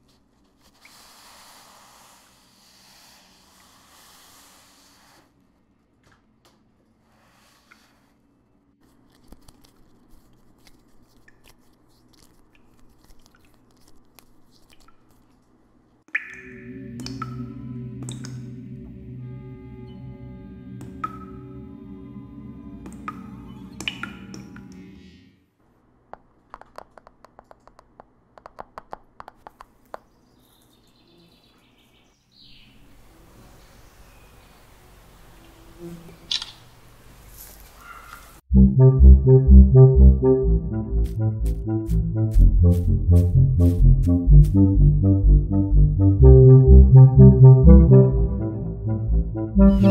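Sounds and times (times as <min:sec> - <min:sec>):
music: 0:16.6 - 0:25.3, 0:38.5 - 0:49.9
low steady hum: 0:38.5 - 0:49.9.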